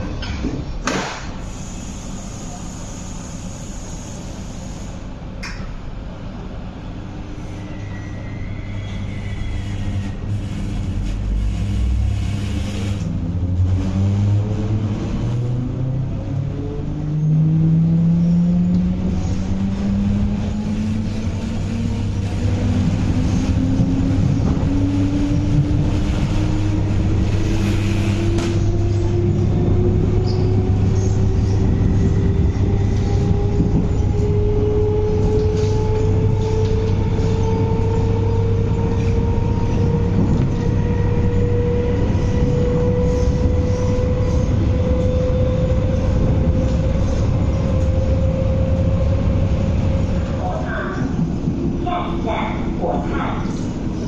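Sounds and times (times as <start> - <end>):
wheels rumbling on rail: 0.0 - 54.0
electric train motor whine: 9.3 - 13.7.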